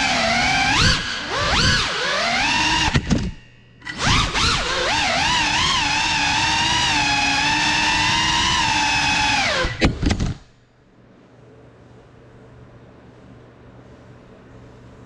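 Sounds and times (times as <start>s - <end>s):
drone motors whining: 0.0s - 10.4s
faint low hum: 10.1s - 15.0s.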